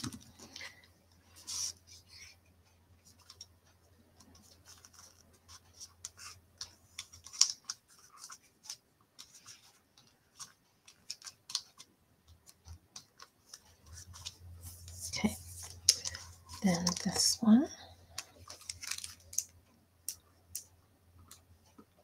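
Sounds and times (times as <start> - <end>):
paper rustling: 4.3 - 17.4, 18.1 - 19.5.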